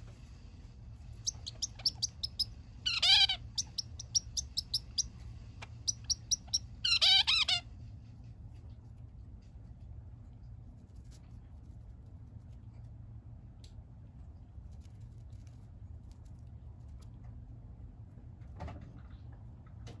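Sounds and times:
finch singing: 1.2 - 7.5.

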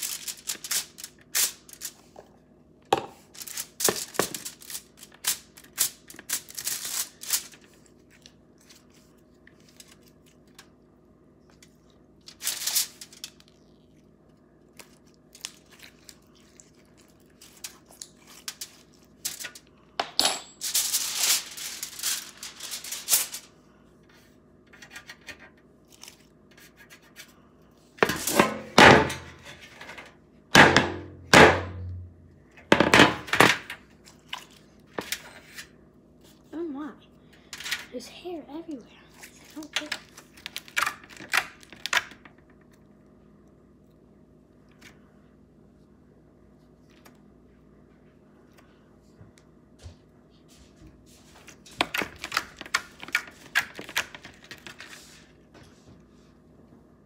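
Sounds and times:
aluminium foil crinkling: 0.0 - 2.2, 3.2 - 10.8, 11.6 - 19.9, 20.6 - 23.6, 39.1 - 42.7, 51.3 - 55.4
baking sheet clattering: 19.3 - 23.5, 28.0 - 30.0, 30.6 - 32.0.

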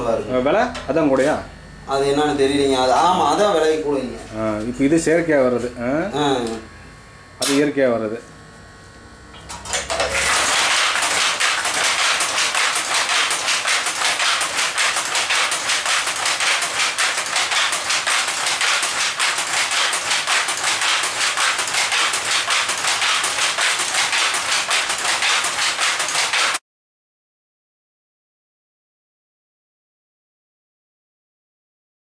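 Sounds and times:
power loom clattering: 9.3 - 26.6.

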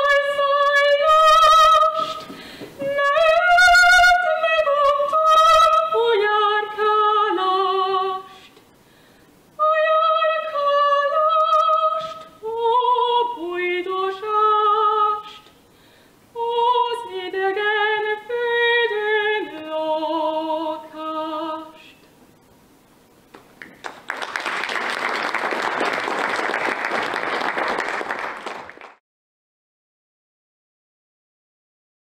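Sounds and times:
woman singing unaccompanied: 0.0 - 8.6, 9.6 - 15.5, 16.3 - 22.0
audience applause: 23.4 - 29.0.

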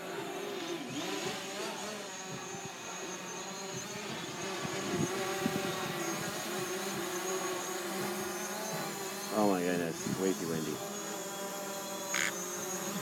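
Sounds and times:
drone propellers buzzing: 0.0 - 13.0
wind rumbling on microphone: 3.7 - 7.2, 9.8 - 10.8.

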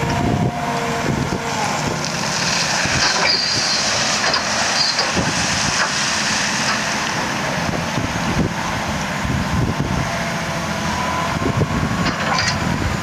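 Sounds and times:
high metallic squeals: 0.0 - 7.0
diesel engine running: 0.0 - 13.0.

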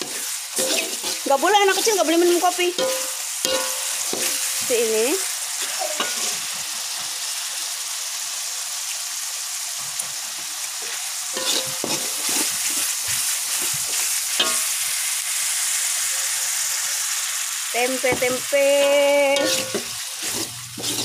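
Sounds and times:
metal spatula scraping wok: 0.0 - 4.9, 5.6 - 6.5, 11.4 - 14.8, 18.1 - 21.0
paste sizzling in oil: 0.0 - 21.0.

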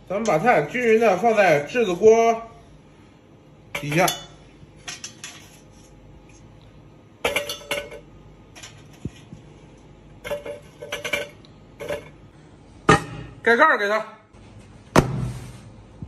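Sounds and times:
metal clinking and clanking: 7.2 - 9.2, 10.2 - 12.2.

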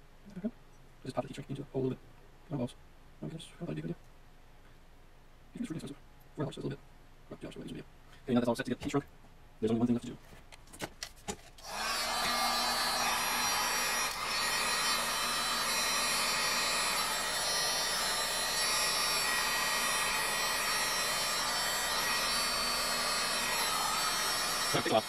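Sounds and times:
heat gun blowing air: 11.6 - 25.0.

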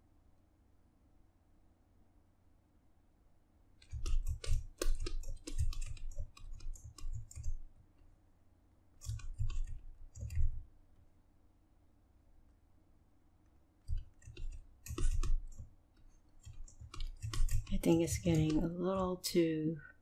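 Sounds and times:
rapid mouse clicking and tapping: 3.8 - 8.1, 9.0 - 10.7, 13.8 - 19.4.

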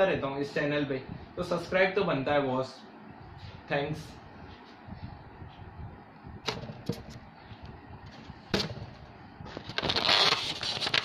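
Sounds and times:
handling crackling and rubbing: 9.4 - 11.0.

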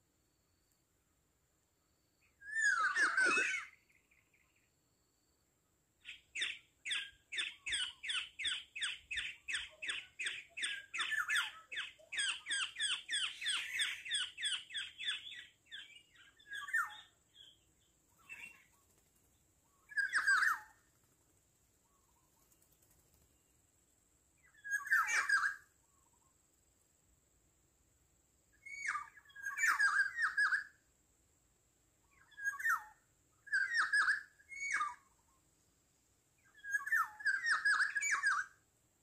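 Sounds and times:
orioles calling: 2.5 - 4.4.

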